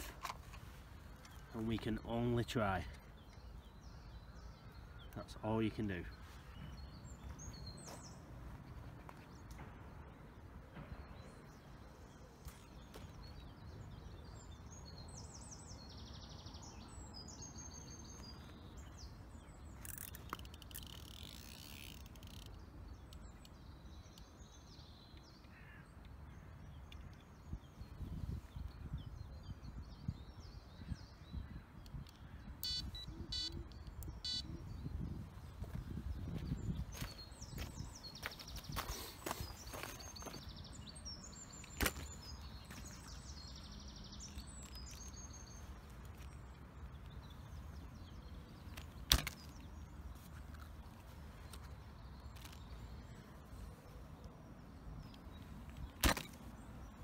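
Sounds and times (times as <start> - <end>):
birds chirping and singing: 10.8 - 57.0
wind rumble on microphone: 27.4 - 39.1
footsteps on gravel: 35.6 - 40.6.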